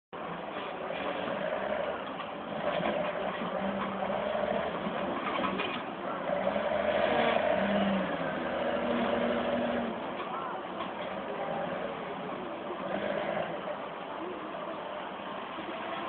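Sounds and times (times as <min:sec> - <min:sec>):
diesel engine revving under load: 0:00.7 - 0:10.2, 0:10.9 - 0:14.0.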